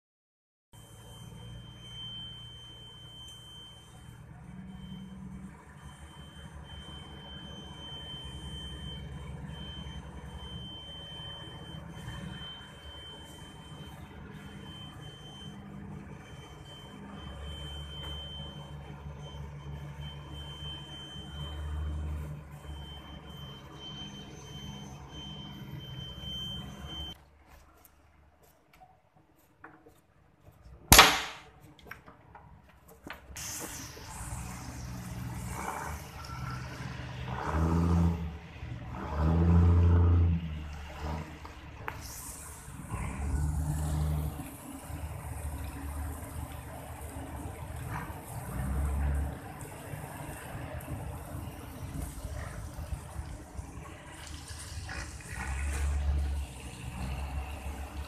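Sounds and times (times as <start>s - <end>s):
loud sharp knock: 30.9s - 31.5s.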